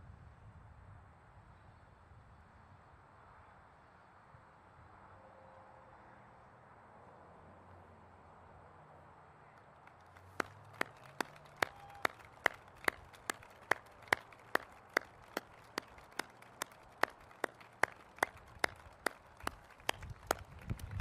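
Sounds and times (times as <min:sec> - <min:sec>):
hand claps: 0:09.8 - 0:21.0.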